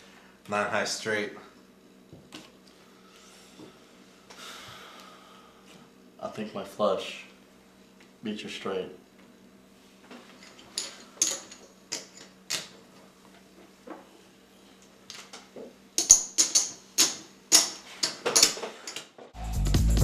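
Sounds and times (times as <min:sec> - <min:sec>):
music: 0:19.4 - 0:20.0.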